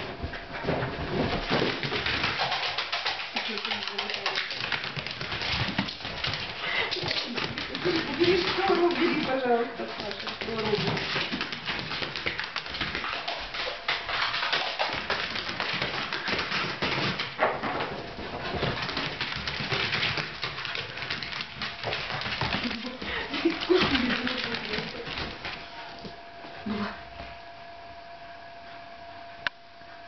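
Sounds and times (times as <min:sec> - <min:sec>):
dog claws skittering on floor: 0:00.6 - 0:26.2.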